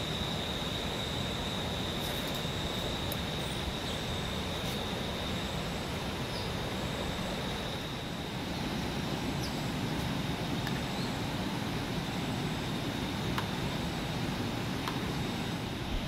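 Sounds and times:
insect trilling: 0:00.0 - 0:08.4.

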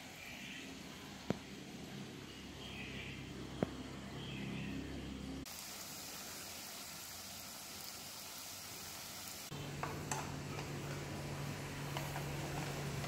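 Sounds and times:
dough deep-frying in hot oil: 0:05.4 - 0:13.0.

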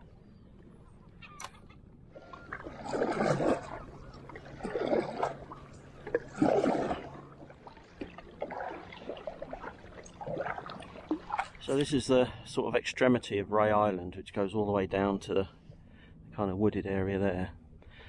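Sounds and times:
kayak paddle strokes splashing: 0:02.2 - 0:11.8.

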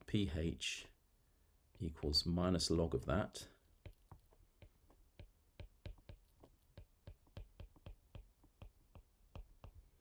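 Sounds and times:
stylus tapping on tablet screen: 0:03.8 - 0:10.0.

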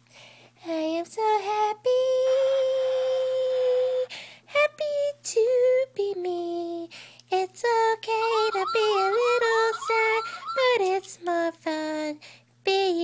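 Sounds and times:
child singing: 0:08.0 - 0:11.9.

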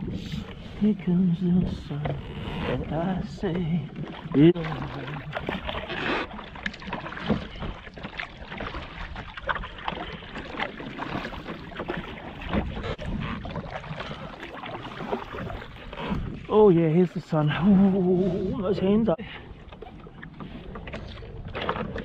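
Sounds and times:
paddle strokes in water: 0:00.0 - 0:22.0
water washing along hull: 0:00.0 - 0:22.0
water splashes and drips: 0:02.9 - 0:17.4, 0:19.2 - 0:22.0.

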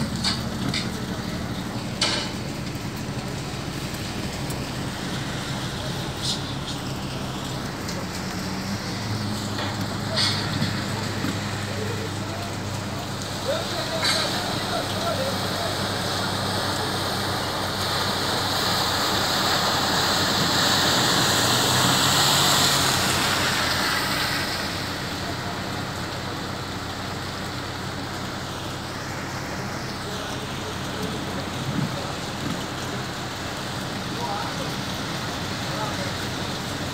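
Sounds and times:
heavy rain hissing: 0:00.0 - 0:36.9.

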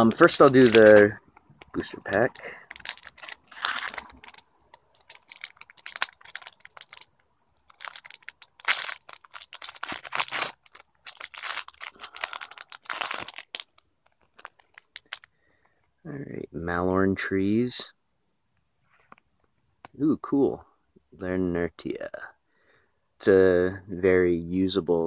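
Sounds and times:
foil wrapper tearing and crinkling: 0:00.0 - 0:01.1, 0:01.8 - 0:15.3.

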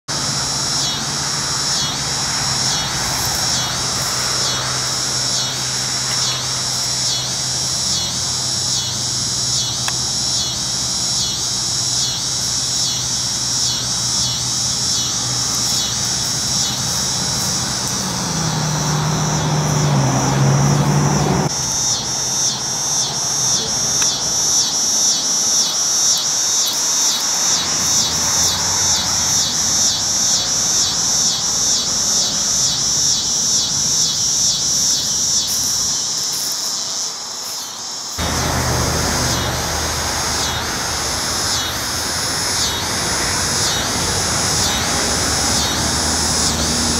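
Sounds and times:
vehicle rumbling past: 0:00.1 - 0:24.5, 0:27.2 - 0:35.8, 0:38.2 - 0:46.9
cicada pulsing buzz: 0:00.1 - 0:46.9
road traffic hum: 0:00.1 - 0:46.9.

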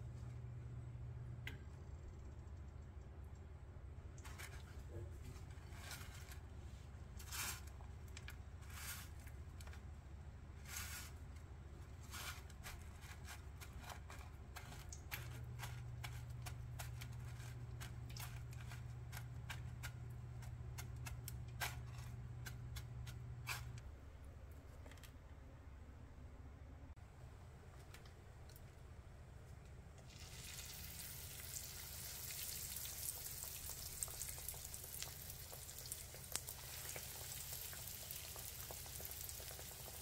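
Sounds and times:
low steady hum: 0:00.0 - 0:40.0
chip crumbs crunching: 0:11.9 - 0:23.8, 0:30.3 - 0:40.0.

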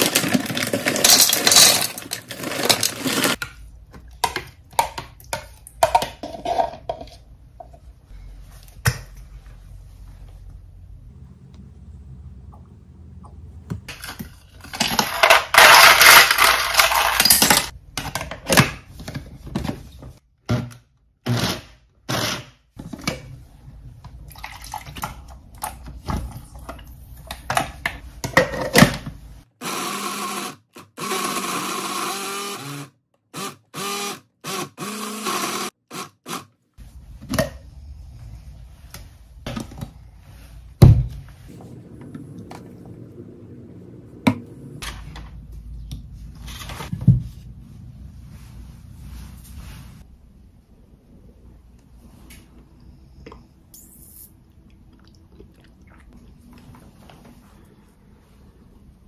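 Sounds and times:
blender motor running: 0:29.6 - 0:36.4.

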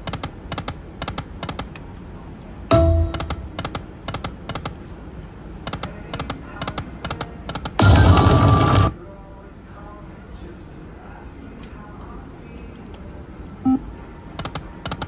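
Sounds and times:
loud electronic tone: 0:07.8 - 0:08.9.

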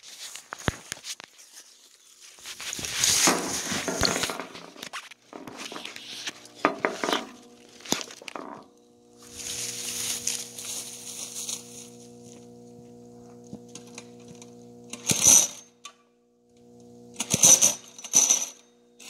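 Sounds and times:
rustling and crunching leaves: 0:00.0 - 0:08.2, 0:09.1 - 0:12.6
small engine humming: 0:05.3 - 0:15.7.

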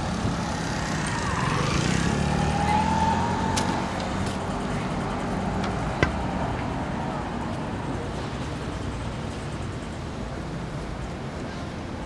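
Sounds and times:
road traffic hum: 0:00.0 - 0:12.0.

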